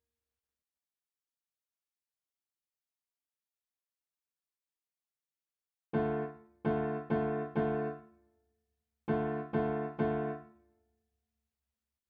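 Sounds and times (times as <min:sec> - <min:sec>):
piano chord stabs: 0:06.0 - 0:08.0, 0:09.1 - 0:10.5.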